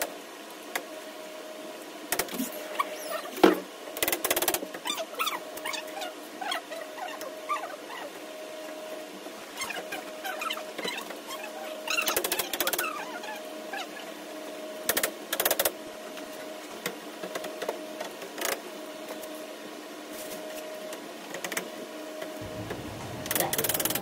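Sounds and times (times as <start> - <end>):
faint steady hum: 21.8 - 24.0.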